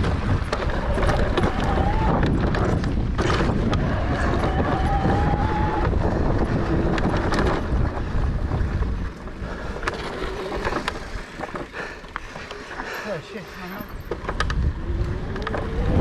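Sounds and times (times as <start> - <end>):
wind rushing over microphone: 0.0 - 11.4, 14.0 - 16.0
bike tyres rolling on dirt: 0.0 - 16.0
sharp clicks and rattles: 5.8 - 8.1, 13.9 - 16.0.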